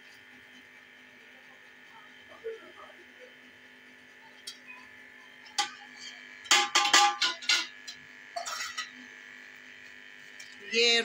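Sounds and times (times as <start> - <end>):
steady electrical hum: 0.0 - 11.0
metallic clanks against cooking pot: 5.5 - 9.0.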